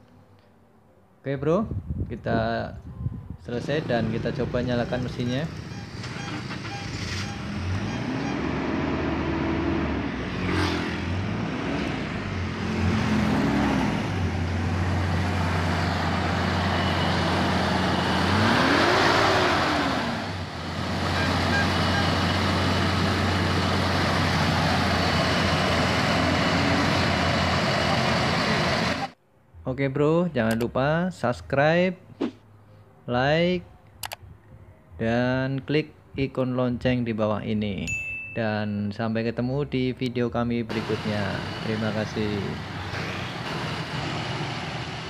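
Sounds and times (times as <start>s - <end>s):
car engine revving and idling: 3.6s - 29.2s, 40.7s - 45.0s.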